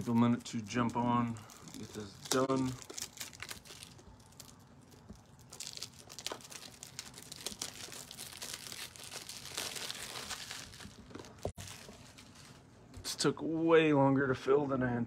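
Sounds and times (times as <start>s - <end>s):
crinkling and rustling: 0.0s - 13.0s.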